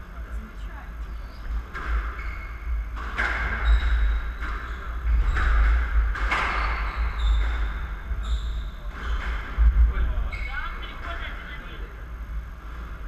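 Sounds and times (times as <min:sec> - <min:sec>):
shoes squeaking on wooden floor: 0:01.0 - 0:09.6
squash ball hitting rackets and walls: 0:01.5 - 0:09.6.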